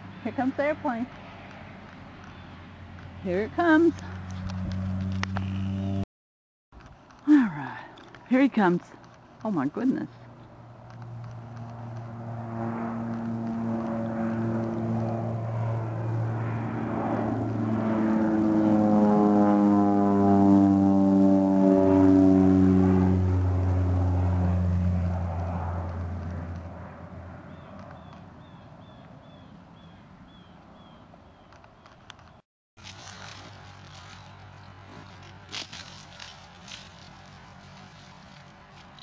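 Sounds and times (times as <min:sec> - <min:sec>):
propeller airplane droning overhead: 0:00.0 - 0:06.0, 0:06.8 - 0:32.4, 0:33.0 - 0:39.0.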